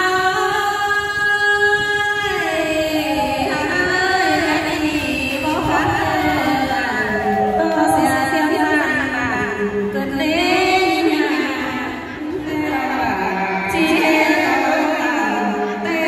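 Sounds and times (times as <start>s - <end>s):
woman singing folk song amplified: 0.0s - 16.0s.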